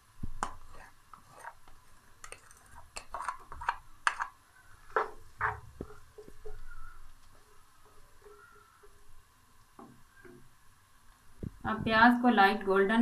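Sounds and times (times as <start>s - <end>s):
spatula scraping wok: 0.4s - 9.1s.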